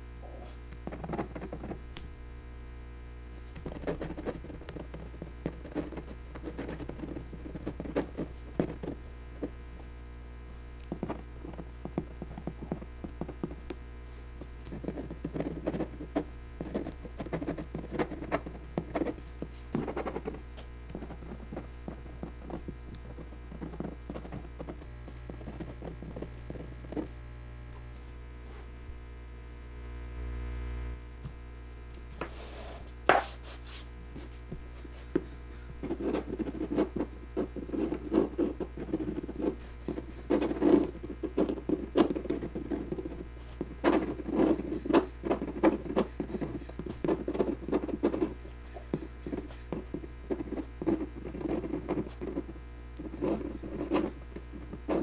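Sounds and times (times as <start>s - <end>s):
pen nib scratching on paper: 0.4s - 1.8s, 3.6s - 9.0s, 10.8s - 13.7s, 14.6s - 27.1s, 35.8s - 55.0s.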